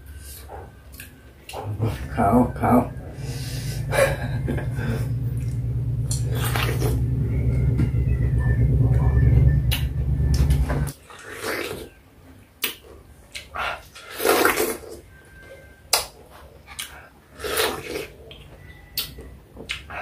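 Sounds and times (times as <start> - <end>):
loud low hum: 1.6 - 10.9
person chewing and slurping fruit: 4.8 - 7.1, 10.3 - 12.0, 12.6 - 15.0, 16.6 - 18.4.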